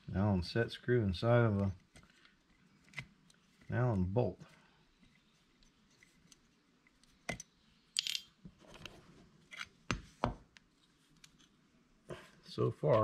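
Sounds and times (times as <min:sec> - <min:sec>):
metal tools clicking and knocking: 0:07.3 - 0:08.3.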